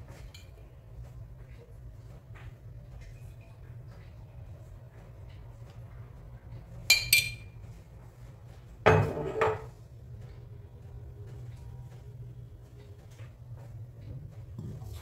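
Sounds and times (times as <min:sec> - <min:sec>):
spoon clinking against kitchenware: 0:06.9 - 0:07.6.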